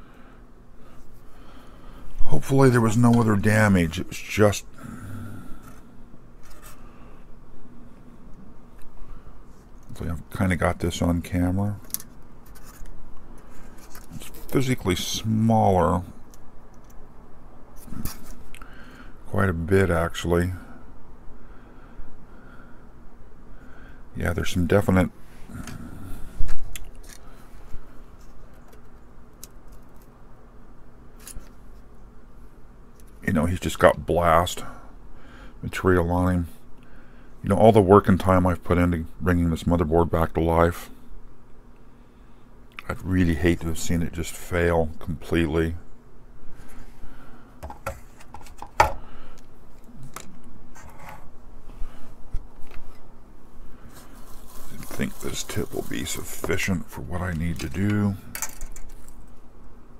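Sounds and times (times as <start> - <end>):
steady low hum: 0.0 - 59.9
tools handled on workbench: 57.6 - 59.2.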